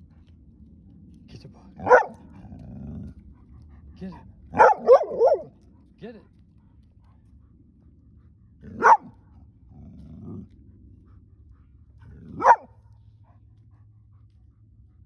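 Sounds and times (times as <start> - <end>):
dog growling: 1.7 - 5.5, 8.6 - 9.1, 9.7 - 10.8, 11.5 - 12.7
dog barking: 1.8 - 2.4, 4.5 - 5.6, 8.7 - 9.2, 12.3 - 12.8.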